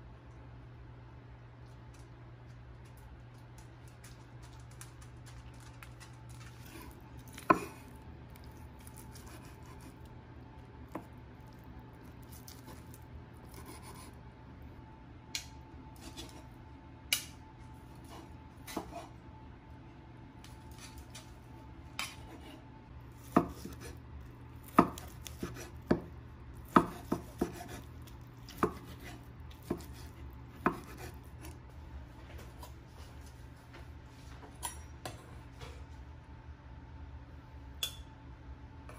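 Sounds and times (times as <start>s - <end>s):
low steady hum: 0.0s - 38.9s
knife chopping on wooden board: 7.4s - 7.8s, 18.1s - 19.1s, 23.2s - 23.9s, 24.6s - 26.1s, 26.7s - 27.9s, 28.5s - 31.6s.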